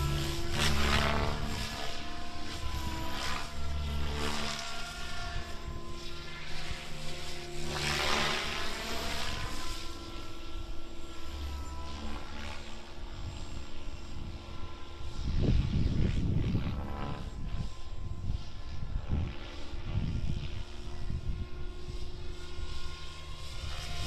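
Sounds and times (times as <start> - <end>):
rotor blades whooshing: 0.0 - 10.3
rc helicopter motor whine: 0.0 - 24.0.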